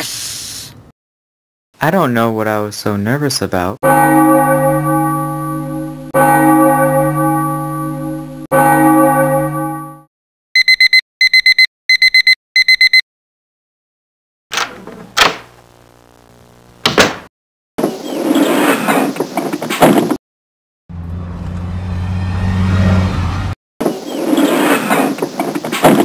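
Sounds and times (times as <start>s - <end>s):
low hum: 3.8s - 10.0s
school bell ringing: 3.8s - 10.1s
alarm clock beeping: 10.6s - 13.0s.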